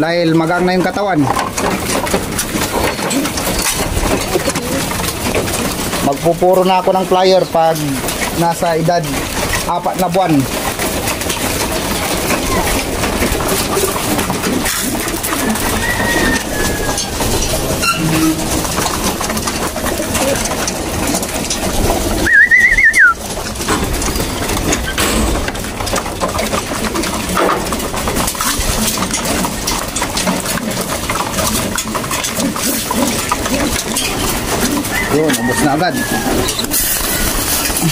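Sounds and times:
birds clicking and rustling: 0:00.0 - 0:37.9
pigeons cooing: 0:01.8 - 0:06.1, 0:10.5 - 0:25.8, 0:30.4 - 0:37.9
loud warbling whistle: 0:22.2 - 0:23.2.

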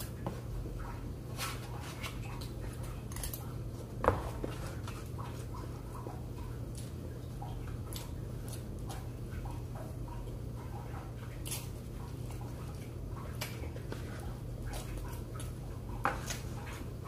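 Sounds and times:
steady low hum: 0:00.0 - 0:17.0
chewing and mouth sounds: 0:05.1 - 0:16.6.

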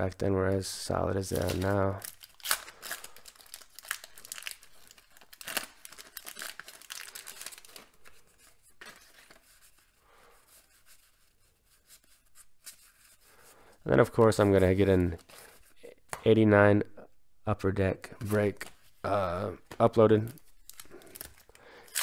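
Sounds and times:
wax paper tearing and rustling: 0:01.2 - 0:09.8.

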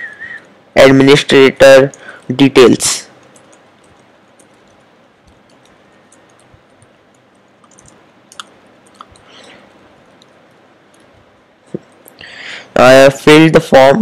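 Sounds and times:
keyboard keystroke clicks: 0:03.2 - 0:09.3.

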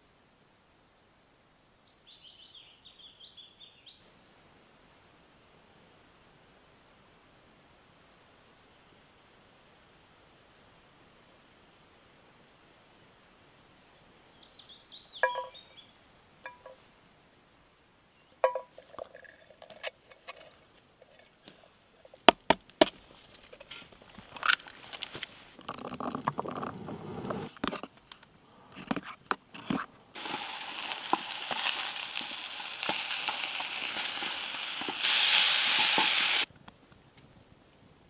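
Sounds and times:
metal clinks and knocks: 0:15.2 - 0:15.6, 0:18.4 - 0:21.3
food sizzling in a pan: 0:30.2 - 0:36.5.

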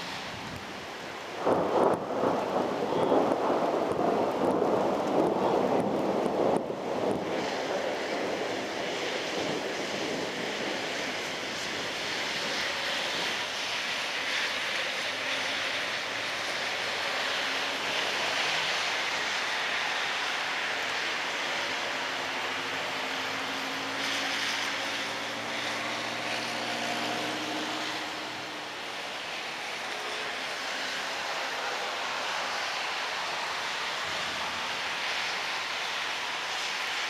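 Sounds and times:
gusty wind on microphone: 0:00.0 - 0:13.7
heavy rain: 0:00.0 - 0:37.0.

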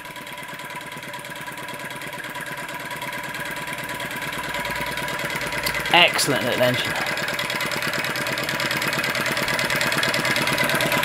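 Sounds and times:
small engine running: 0:00.0 - 0:11.0.

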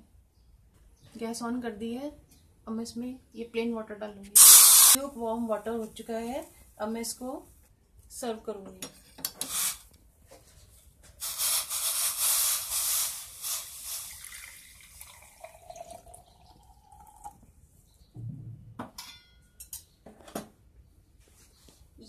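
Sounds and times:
water pouring into jar: 0:13.4 - 0:17.4.

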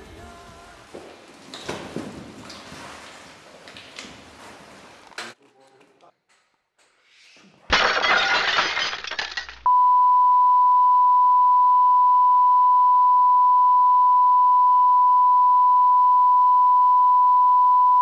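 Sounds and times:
rustling scraping noise: 0:01.0 - 0:05.4.

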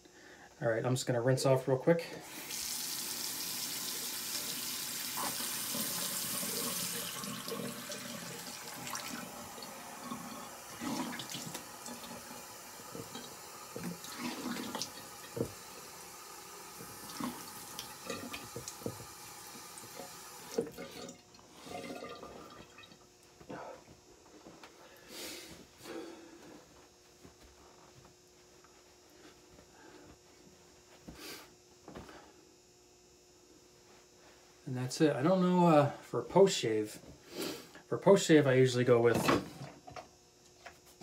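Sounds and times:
water running from tap: 0:02.2 - 0:23.0.

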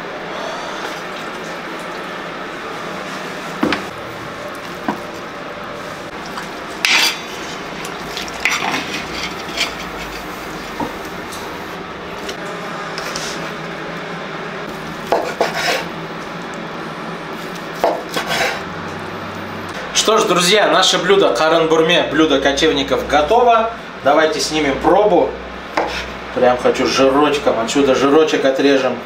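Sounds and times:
steady hum: 0:00.0 - 0:28.1
metal skimmer scraping a pot: 0:06.3 - 0:11.0.

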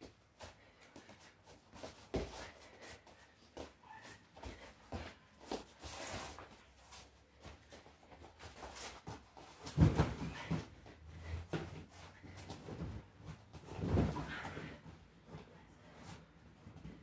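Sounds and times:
feet shuffling on a mat: 0:00.0 - 0:17.0
bodies thudding onto a mat: 0:09.6 - 0:10.8, 0:12.5 - 0:14.8.

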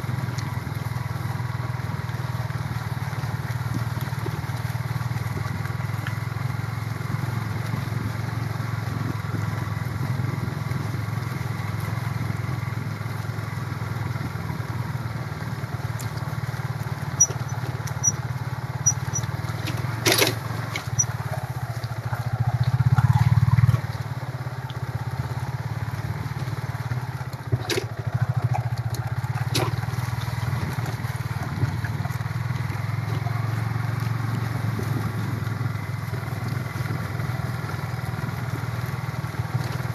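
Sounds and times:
small motorcycle engine running: 0:00.0 - 0:39.9.

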